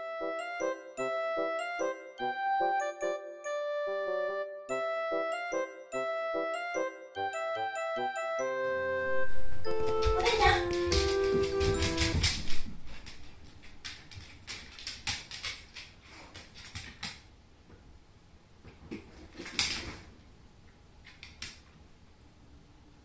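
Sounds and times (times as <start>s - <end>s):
dog paws clicking on wood floor: 9.7s - 17.3s, 18.6s - 20.1s.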